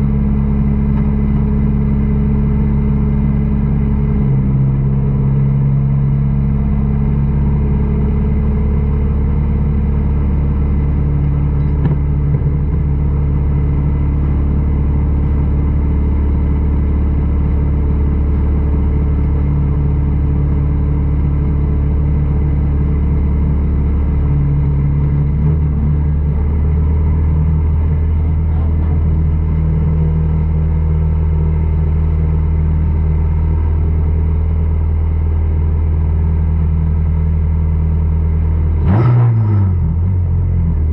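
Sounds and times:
race car engine idling: 0.0s - 38.8s.

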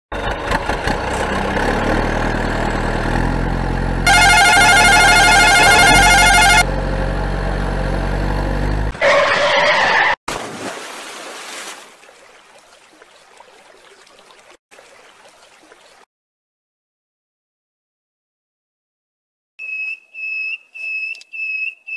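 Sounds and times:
vehicle engine running: 0.1s - 9.0s
warbling horn blast: 4.0s - 6.8s.

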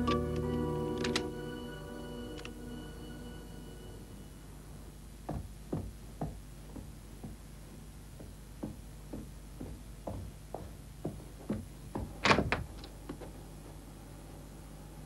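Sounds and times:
low steady hum: 0.0s - 15.0s
footsteps walking: 5.3s - 13.8s.

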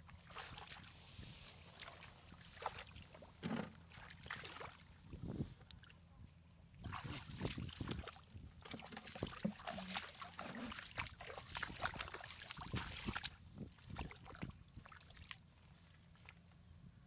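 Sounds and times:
hands splashing in muddy water: 0.0s - 1.0s, 1.6s - 5.9s, 6.8s - 15.5s.

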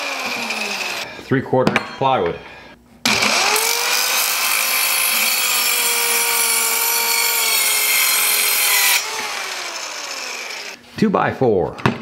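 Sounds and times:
circular saw cutting plywood: 0.0s - 1.1s, 3.1s - 10.8s.

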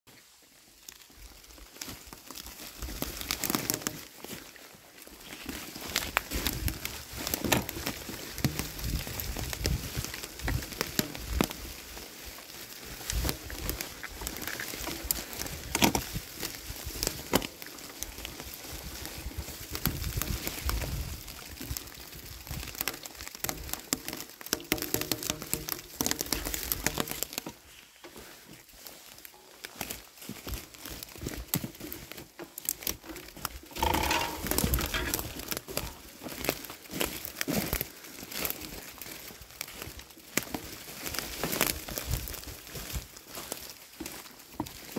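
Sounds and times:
bicycle tyres crunching dry leaves: 0.1s - 44.9s
bike jolting knocks: 33.7s - 35.4s.

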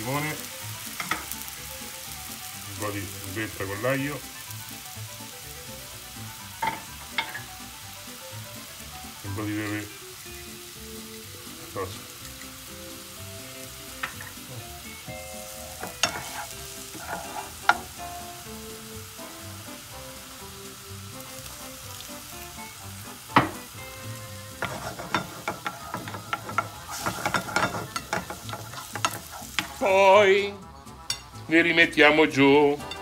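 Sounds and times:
sauce bubbling and sizzling: 0.0s - 33.0s
wooden spoon stirring sauce: 16.0s - 17.8s.

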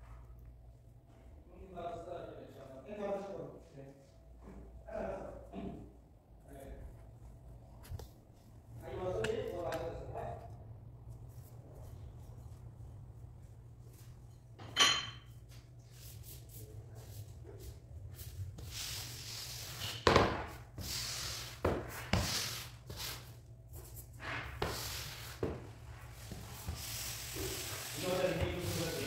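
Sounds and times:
squeegee scraping on tiles: 18.1s - 29.0s.

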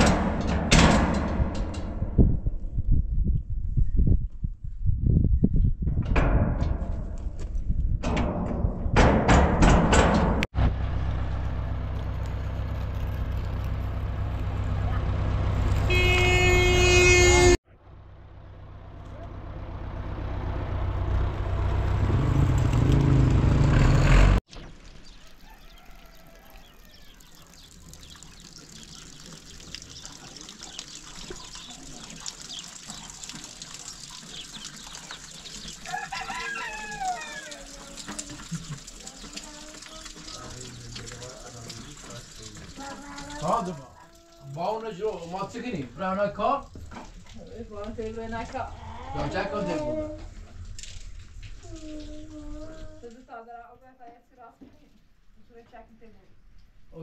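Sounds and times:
tractor engine running: 9.0s - 24.9s
horn-like tone: 15.8s - 17.6s
rooster crowing: 25.2s - 27.4s, 35.8s - 37.8s.

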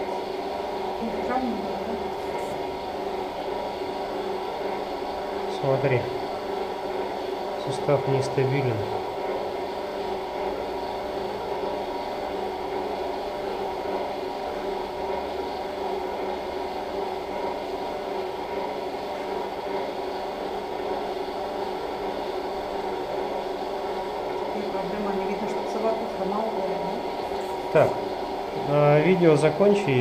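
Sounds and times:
equipment hum: 0.0s - 30.0s.

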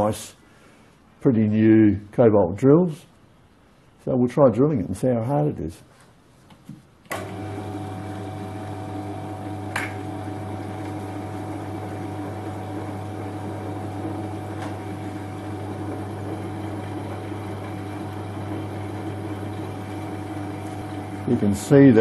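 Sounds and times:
metal lathe humming and whining: 7.2s - 21.9s.

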